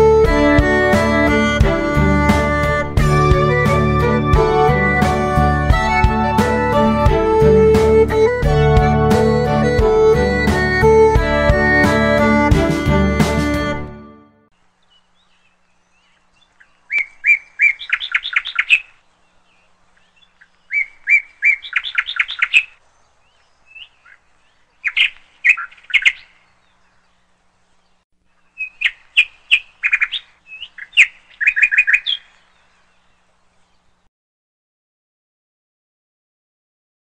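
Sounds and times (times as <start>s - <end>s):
songbird chirping: 14.5s - 34.1s.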